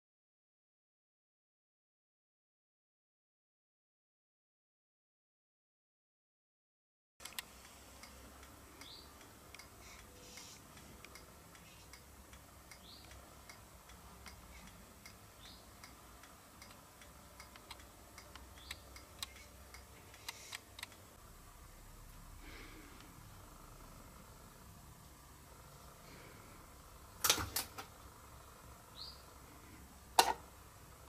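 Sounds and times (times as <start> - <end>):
soft clicks and ticks: 7.2 - 21.1
steady low hum: 7.2 - 31.0.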